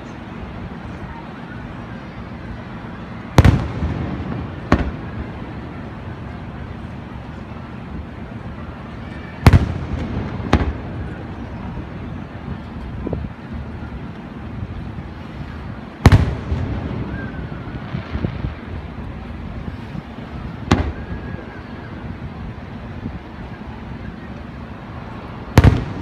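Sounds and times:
steady background hiss: 0:00.0 - 0:26.0
firework shells booming: 0:03.4 - 0:05.4, 0:09.4 - 0:11.1, 0:16.0 - 0:18.4, 0:20.7 - 0:21.1, 0:25.5 - 0:26.0.

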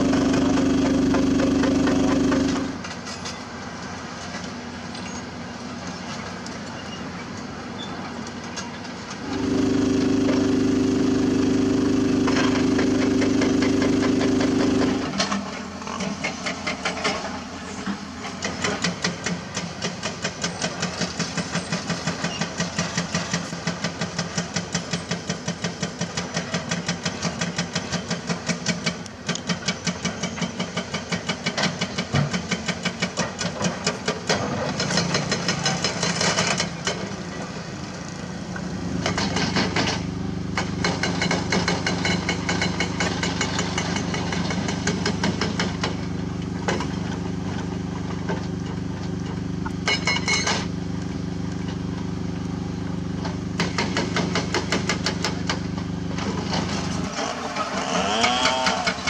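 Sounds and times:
hydraulic rock breaker hammering: 0:00.0 - 0:02.8, 0:09.2 - 0:17.3, 0:18.4 - 0:37.2, 0:39.0 - 0:50.8, 0:53.2 - 0:59.0
excavator diesel engine running: 0:00.0 - 0:02.9, 0:08.9 - 0:24.8, 0:34.5 - 0:59.0.

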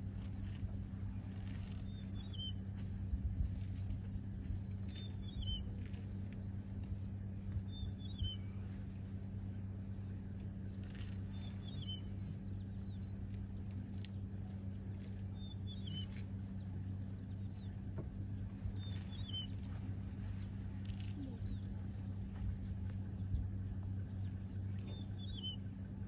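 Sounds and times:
low hum: 0:00.0 - 0:26.0
bird chirping: 0:01.4 - 0:02.6, 0:04.5 - 0:06.4, 0:07.4 - 0:09.3, 0:10.7 - 0:21.9, 0:22.6 - 0:25.8.

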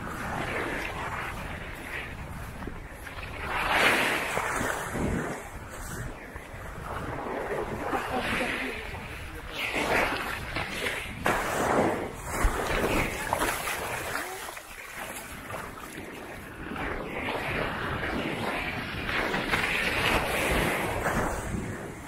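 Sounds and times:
small waves breaking on sand: 0:00.0 - 0:22.0
wind rumbling on microphone: 0:00.0 - 0:22.0.

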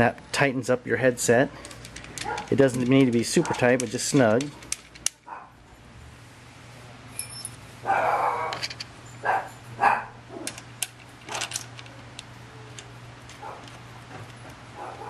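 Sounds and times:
steady low hum: 0:00.0 - 0:15.0
metal key clicking and scraping: 0:01.5 - 0:05.2.

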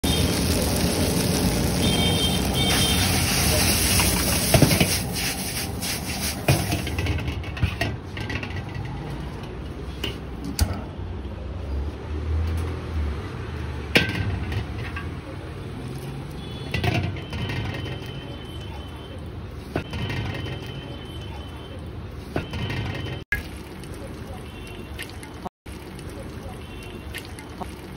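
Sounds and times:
hot wok hissing: 0:00.0 - 0:07.0
ladle clanking in iron wok: 0:06.4 - 0:09.0.

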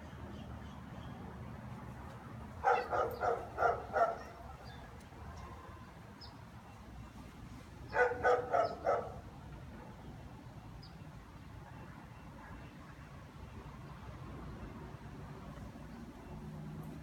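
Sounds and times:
dog barking: 0:02.6 - 0:04.6, 0:07.9 - 0:09.2.

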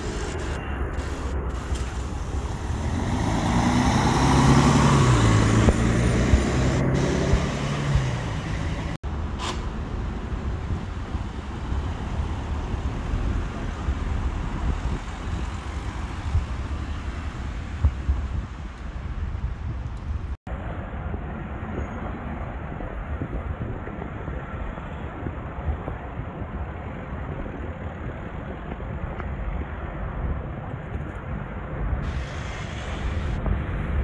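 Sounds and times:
street traffic noise: 0:00.0 - 0:34.0
motor vehicle passing: 0:01.0 - 0:09.0.

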